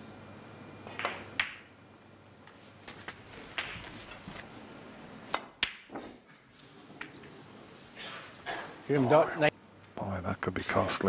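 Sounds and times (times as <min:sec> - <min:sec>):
cue tip striking ball: 0:00.9 - 0:01.7
snooker balls knocking together: 0:00.9 - 0:01.7, 0:05.3 - 0:06.3.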